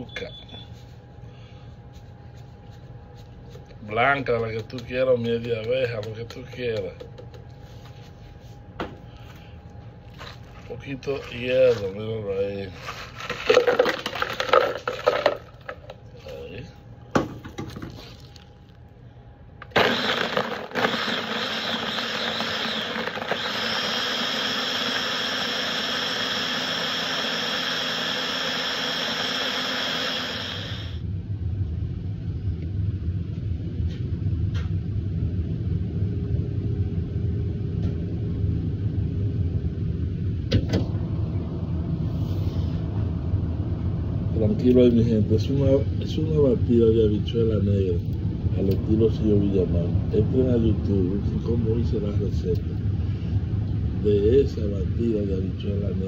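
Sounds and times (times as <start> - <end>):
low steady rumble: 0.0 - 20.0, 31.0 - 56.0
ice clattering into blender jar: 13.2 - 15.9
blender running: 19.6 - 31.0.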